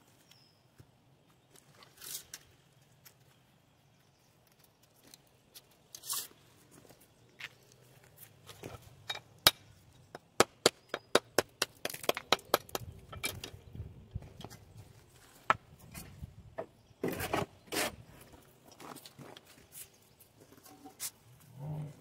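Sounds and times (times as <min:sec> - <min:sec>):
knocks and taps on stone: 0:09.1 - 0:13.5.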